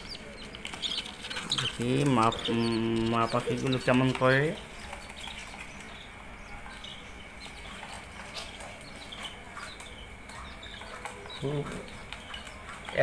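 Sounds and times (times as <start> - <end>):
budgerigars chirping: 0.0 - 13.0.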